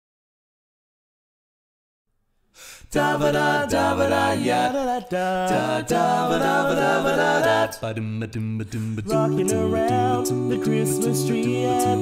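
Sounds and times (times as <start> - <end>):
men singing close harmony: 2.9 - 8.0, 8.8 - 12.0.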